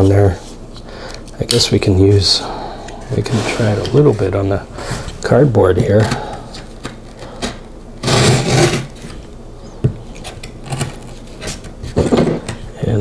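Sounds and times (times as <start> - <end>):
knife scraping cardboard: 8.0 - 9.1.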